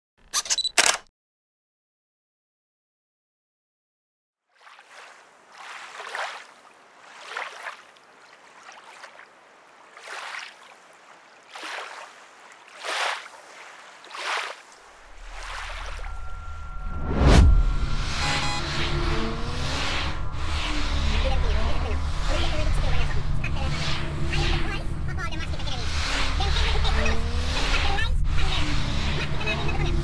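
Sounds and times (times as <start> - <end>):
small waves washing in: 4.5 - 16.8, 18.8 - 30.0
low drone: 15.0 - 30.0.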